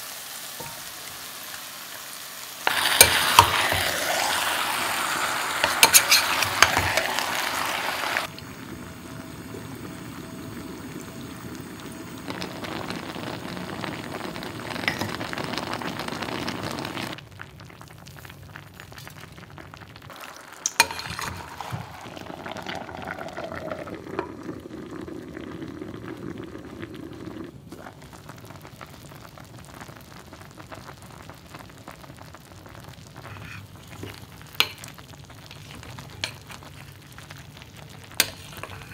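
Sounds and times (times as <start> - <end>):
chicken sizzling in a clay pot: 0.0 - 38.9
metal spoon stirring and scraping: 5.6 - 7.2, 20.6 - 21.9, 35.6 - 36.7, 38.2 - 38.9.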